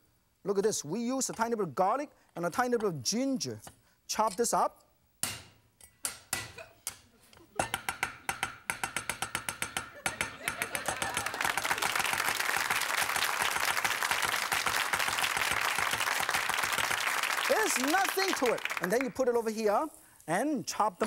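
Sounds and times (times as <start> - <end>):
audience applause: 10.4 - 19.2.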